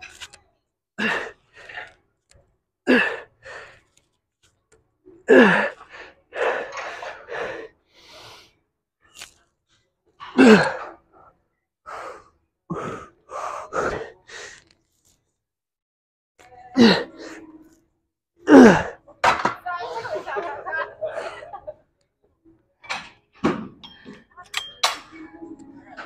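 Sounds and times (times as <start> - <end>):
man grunting with exertion: 18.5 - 19.0.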